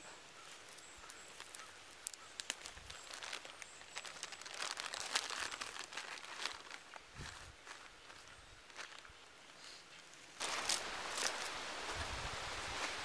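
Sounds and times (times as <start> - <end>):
seed heads crackling and rustling: 0.0 - 13.0.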